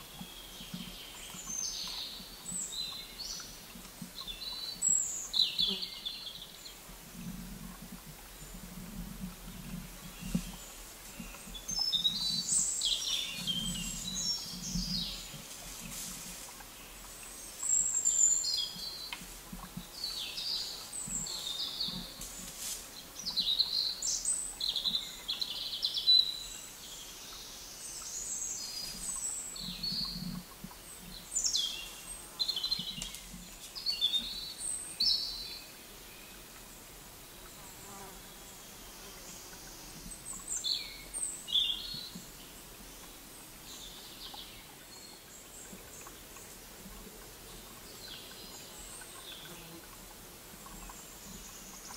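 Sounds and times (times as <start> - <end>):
songbirds chirping and warbling: 0.0 - 51.9.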